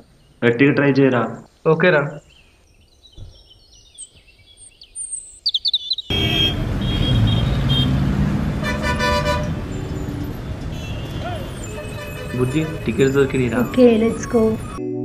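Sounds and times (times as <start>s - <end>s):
birds chirping: 0.0s - 14.8s
street traffic noise: 6.1s - 14.8s
vehicle horn honking: 6.1s - 14.8s.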